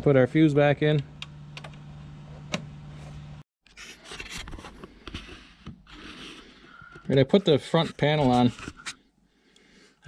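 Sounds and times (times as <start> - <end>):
scraping and rubbing handling noises: 1.9 - 9.0.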